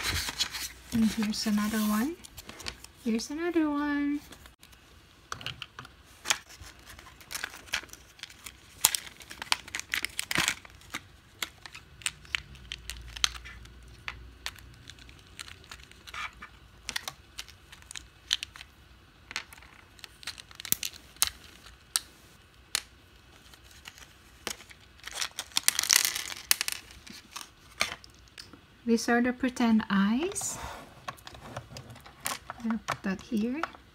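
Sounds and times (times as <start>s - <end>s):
plastic blister tray crinkling: 6.2s - 22.1s, 22.8s - 28.5s
plastic pieces clicking: 19.3s - 22.1s, 24.4s - 28.5s.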